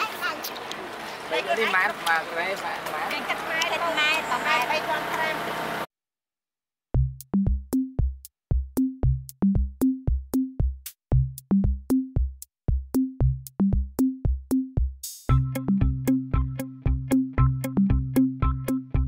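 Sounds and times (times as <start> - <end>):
electronic drum beat: 7.0 - 19.0.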